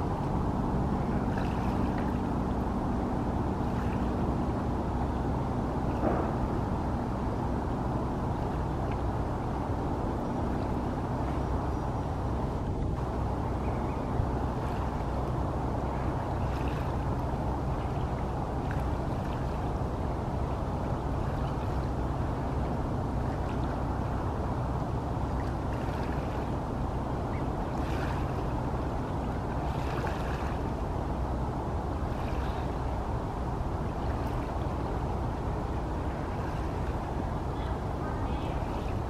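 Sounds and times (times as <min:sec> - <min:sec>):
outdoor background noise: 0:00.0 - 0:39.0
steady low rumble: 0:00.0 - 0:39.0.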